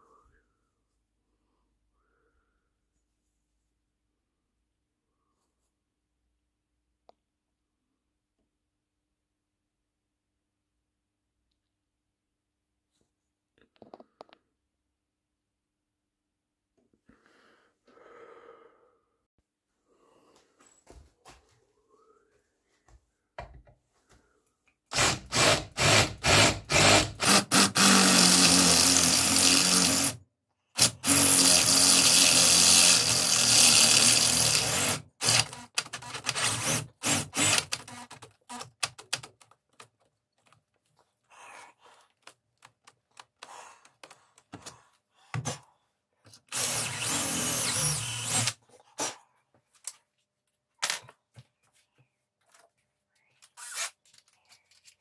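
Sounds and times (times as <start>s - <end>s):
power tool running: 24.9s - 30.2s, 30.8s - 38.6s, 46.5s - 48.6s.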